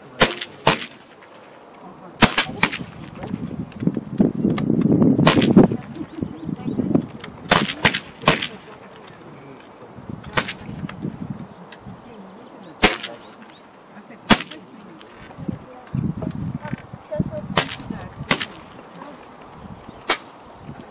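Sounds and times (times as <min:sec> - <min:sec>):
air rifle shots: 0:00.2 - 0:01.0, 0:02.2 - 0:03.0, 0:05.2 - 0:05.7, 0:07.5 - 0:08.7, 0:10.3 - 0:10.8, 0:12.8 - 0:13.3, 0:14.3 - 0:14.6, 0:17.5 - 0:18.7, 0:20.0 - 0:20.3.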